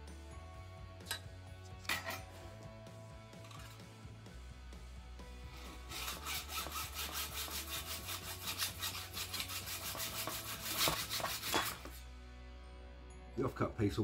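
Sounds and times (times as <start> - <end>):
hacksaw cutting metal: 5.7 - 12.0.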